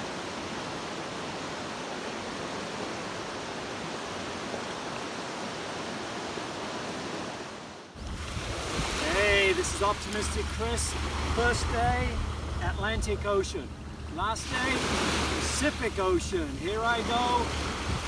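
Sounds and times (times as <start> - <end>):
river rushing over rapids: 0.0 - 18.0
low rumble: 9.9 - 15.4.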